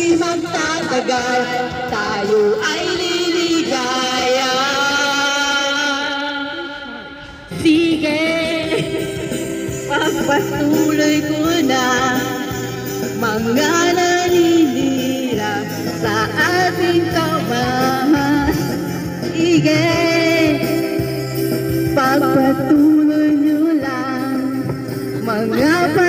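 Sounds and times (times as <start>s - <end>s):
karaoke backing track: 0.0s - 26.0s
woman singing karaoke: 0.0s - 26.0s.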